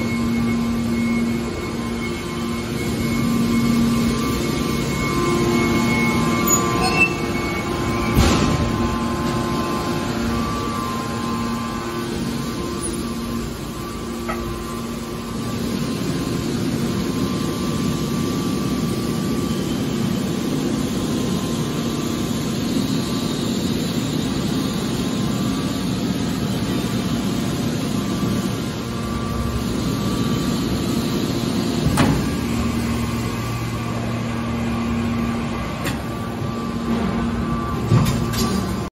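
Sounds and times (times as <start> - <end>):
hydraulic machine hum: 0.0 - 38.9.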